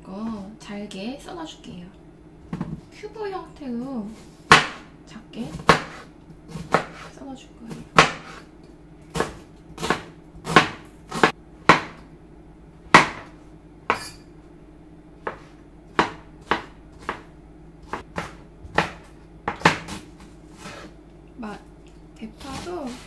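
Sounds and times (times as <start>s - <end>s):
knife chopping on cutting board: 4.5s - 4.9s, 5.5s - 7.1s, 7.7s - 8.5s, 9.1s - 12.0s, 12.9s - 14.2s, 15.2s - 20.9s.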